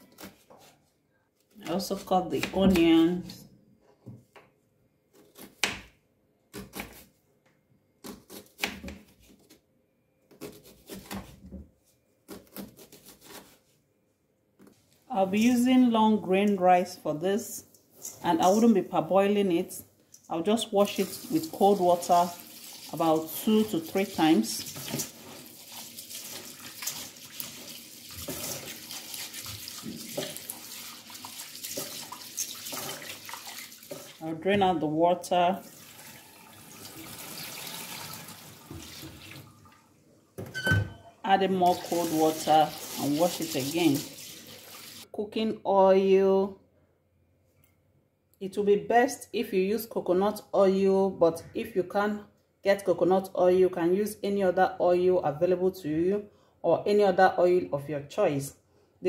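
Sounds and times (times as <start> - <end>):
knife slicing onion on wooden board: 6.5 - 7.1, 10.3 - 11.6, 12.2 - 13.6
tap water running into bowl: 24.6 - 34.2, 35.6 - 39.8, 41.7 - 45.0.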